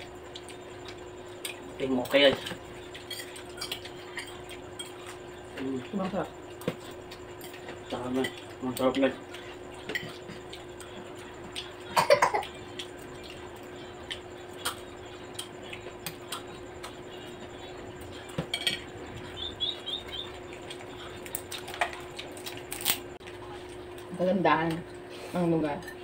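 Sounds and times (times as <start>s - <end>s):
steady low hum: 0.0s - 26.0s
cutlery clinking on plates: 18.4s - 18.9s.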